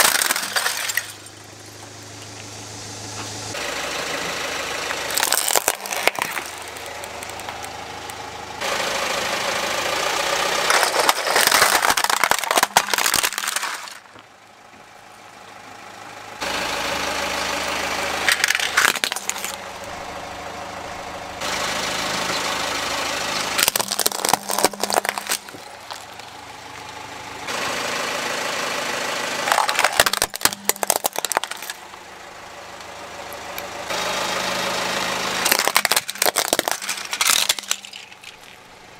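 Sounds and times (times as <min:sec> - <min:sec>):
plastic toys crushed by tyre: 0:00.0 - 0:01.4, 0:05.0 - 0:07.8, 0:10.6 - 0:14.3, 0:18.2 - 0:19.6, 0:23.6 - 0:26.4, 0:29.4 - 0:32.0, 0:35.4 - 0:38.8
car engine idling: 0:00.0 - 0:38.9.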